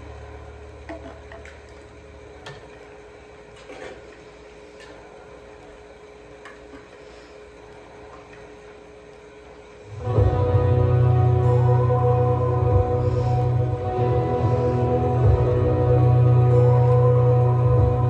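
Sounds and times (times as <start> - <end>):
steady hum: 0.0 - 18.0
low rumble: 9.9 - 18.0.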